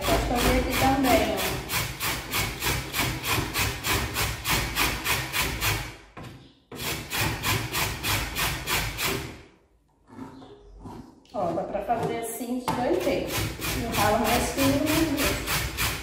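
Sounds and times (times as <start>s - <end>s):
seed grated on metal grater: 0.0s - 5.8s, 12.8s - 16.0s.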